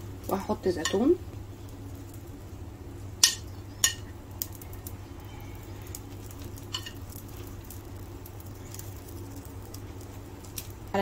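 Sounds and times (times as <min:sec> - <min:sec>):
low steady hum: 0:00.0 - 0:11.0
chopsticks tapping frying pan: 0:00.3 - 0:01.2, 0:03.2 - 0:04.9, 0:05.9 - 0:09.8.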